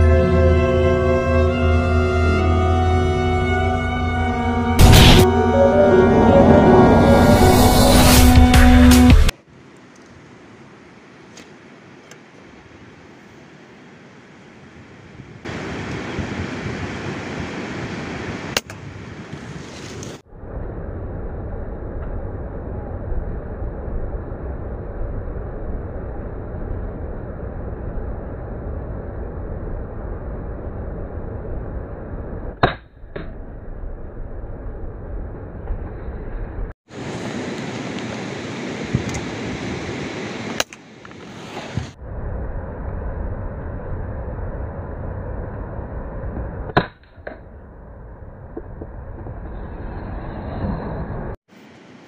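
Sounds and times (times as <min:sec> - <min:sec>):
river water rushing: 0:15.5 - 0:18.5.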